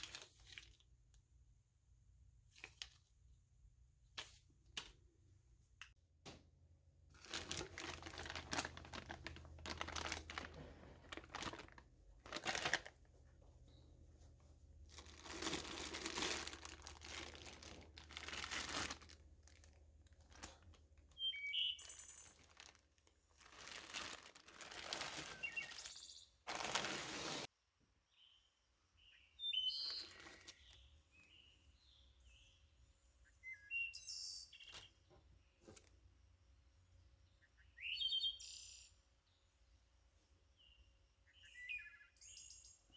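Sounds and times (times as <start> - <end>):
plastic bags crinkling: 7.1 - 13.3, 14.8 - 27.5.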